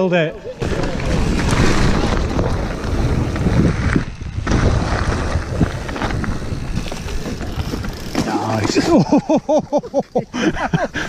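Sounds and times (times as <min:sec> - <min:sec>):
bike tyres rolling over gravel: 0:00.4 - 0:11.0
wind buffeting microphone: 0:00.5 - 0:08.1.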